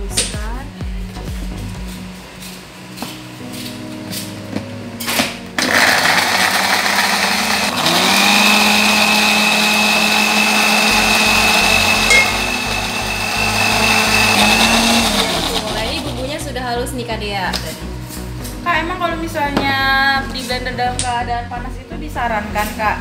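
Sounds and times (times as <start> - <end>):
blender motor grinding: 5.5 - 16.5
steady whine: 9.5 - 17.0.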